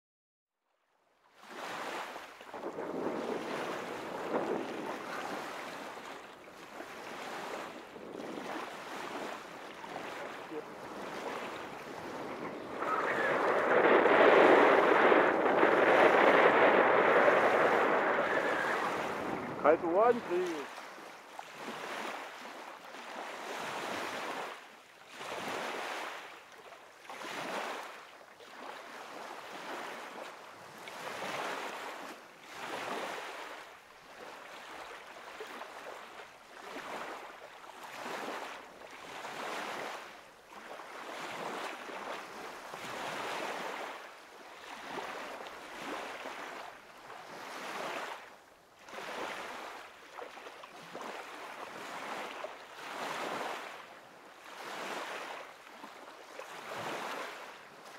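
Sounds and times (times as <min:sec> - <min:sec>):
gusty wind rushing: 0:02.6 - 0:05.2, 0:07.4 - 0:20.7.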